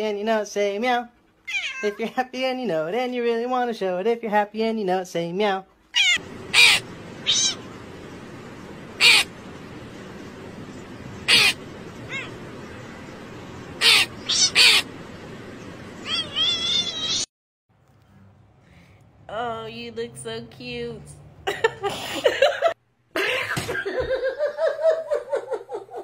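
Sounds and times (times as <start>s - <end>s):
cats meowing: 1.4s - 2.0s, 5.9s - 7.9s, 9.0s - 9.3s, 11.2s - 12.7s, 13.8s - 14.9s, 16.0s - 17.3s
steady background noise: 6.2s - 26.0s
crow cawing: 6.3s - 7.7s, 9.0s - 9.4s, 11.2s - 12.4s, 13.8s - 14.9s.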